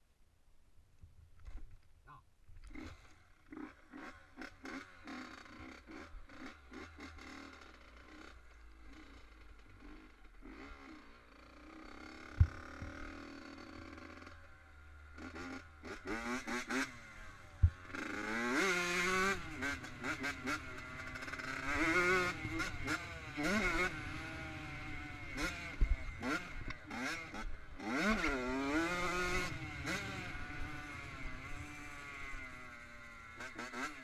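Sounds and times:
motocross engine revving: 0:02.6 - 0:34.0.

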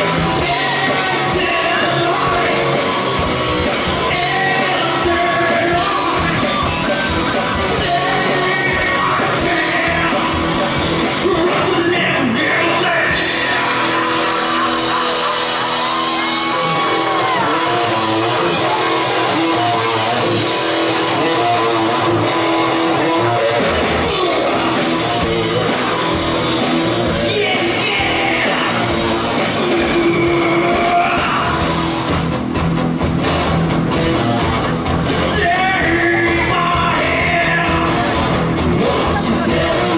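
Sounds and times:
person singing and shouting: 0:00.0 - 0:03.0, 0:03.7 - 0:22.1, 0:23.1 - 0:31.7, 0:35.2 - 0:39.9
deep bass: 0:00.0 - 0:39.9
live rock band playing: 0:00.0 - 0:39.9.

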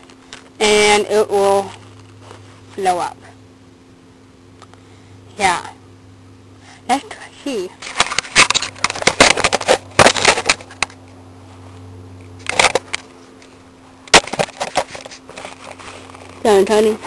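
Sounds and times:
plastic bag crackling: 0:14.1 - 0:17.0.

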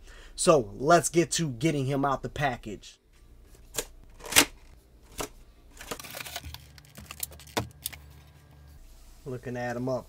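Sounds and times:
packaging clicks and taps: 0:05.1 - 0:08.0
crinkly packaging rustle: 0:05.1 - 0:08.4.

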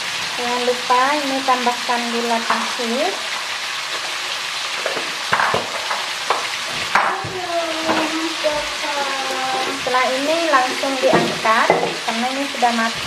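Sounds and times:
beans sizzling in a pan: 0:00.0 - 0:13.0
spatula scraping and knocking pan: 0:03.9 - 0:12.2.

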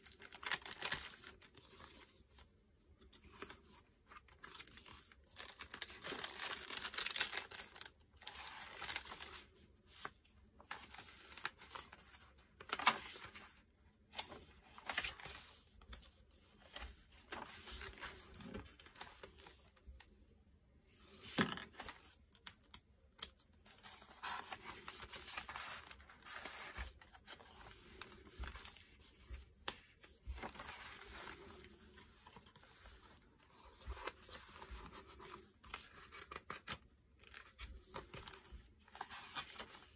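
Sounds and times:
paper pages rustling and crinkling: 0:00.0 - 0:20.1, 0:20.9 - 0:39.9.

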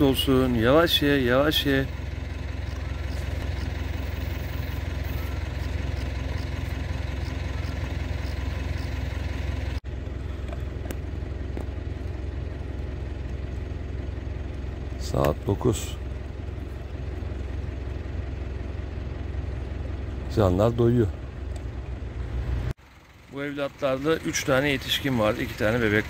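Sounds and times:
low mechanical hum: 0:00.0 - 0:20.4.

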